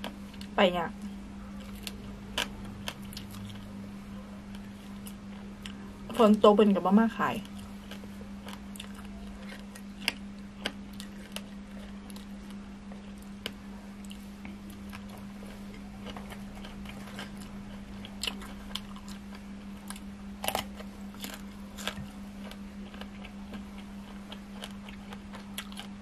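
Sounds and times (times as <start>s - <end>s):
steady low hum: 0.0s - 26.0s
person chewing crunchy food: 1.6s - 3.8s, 4.4s - 6.4s, 7.4s - 26.0s
small crunches and clicks: 13.2s - 26.0s.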